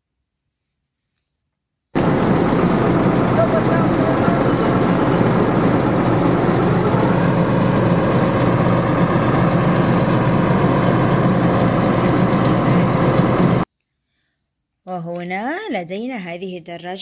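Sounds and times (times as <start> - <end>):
vehicle engine running: 2.0 - 13.6.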